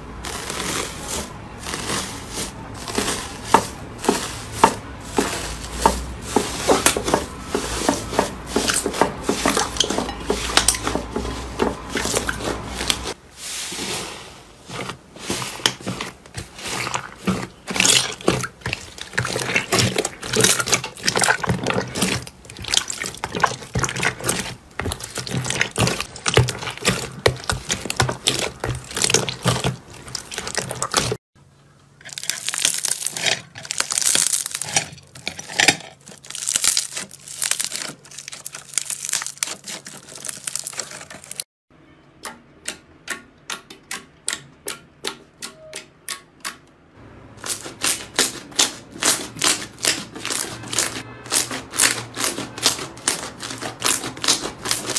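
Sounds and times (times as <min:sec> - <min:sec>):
slime squelching and crackling: 0:00.0 - 0:31.2, 0:32.0 - 0:41.5, 0:47.4 - 0:54.9.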